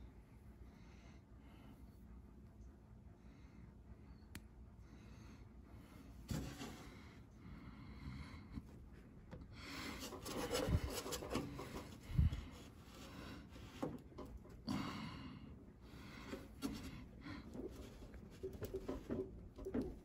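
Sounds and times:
rubber rubbing and scraping: 10.0s - 12.2s.

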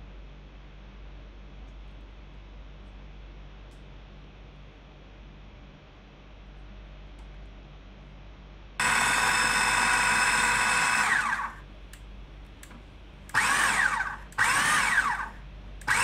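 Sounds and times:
food processor motor whirring: 8.8s - 11.6s, 13.3s - 16.0s.

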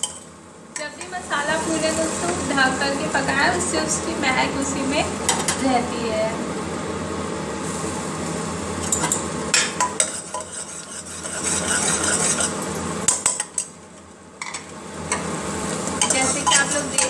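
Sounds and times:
paste sizzling in oil: 9.8s - 13.3s, 15.6s - 17.0s
steel spoon clinking: 16.0s - 17.0s.

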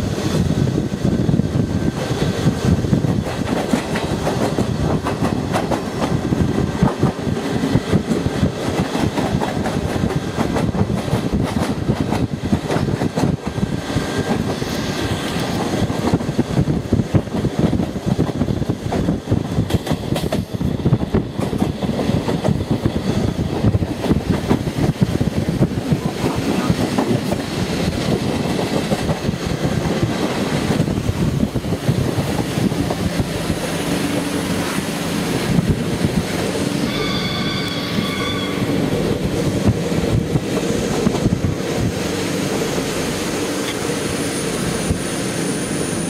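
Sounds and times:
train rolling rumble: 0.0s - 46.0s
train wheels clattering over rail joints: 1.8s - 34.5s
high wavering squeal: 36.8s - 38.9s.

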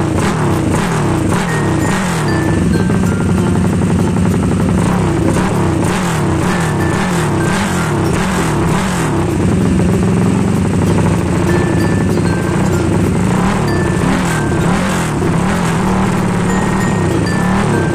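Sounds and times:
motorcycle engine revving and idling: 0.0s - 17.9s.

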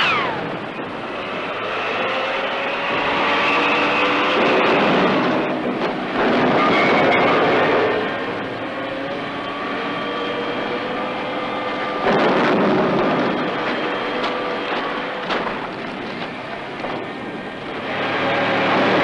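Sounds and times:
tank engine running: 0.0s - 19.0s
whining tones: 0.0s - 19.0s
tank tracks clattering: 4.3s - 7.3s, 12.0s - 17.7s.

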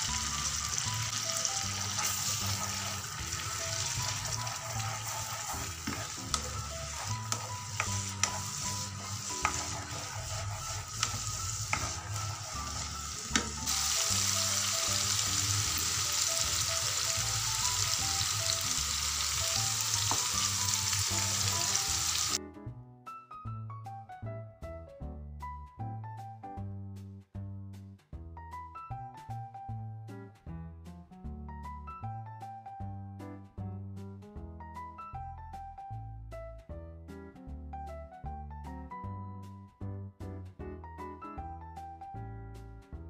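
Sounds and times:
paste sizzling in a frying pan: 0.0s - 22.4s.

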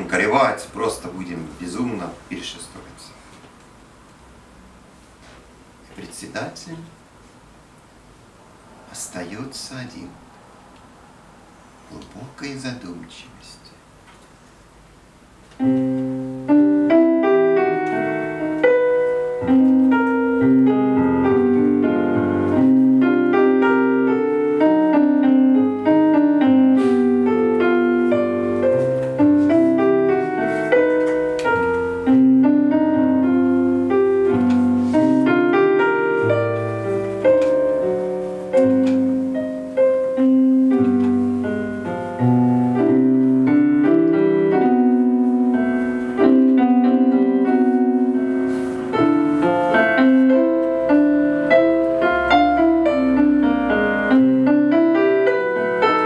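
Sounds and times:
solo piano music: 14.7s - 56.0s.

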